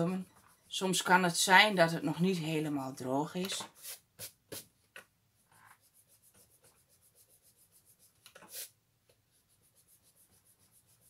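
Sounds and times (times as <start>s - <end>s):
eraser rubbing on paper: 3.7s - 4.8s, 5.4s - 11.0s.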